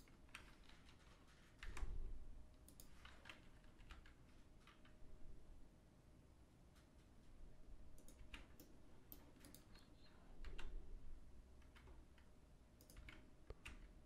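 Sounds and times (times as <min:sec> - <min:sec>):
computer mouse and keyboard clicks: 0:02.6 - 0:05.0, 0:08.0 - 0:10.8, 0:11.6 - 0:13.9.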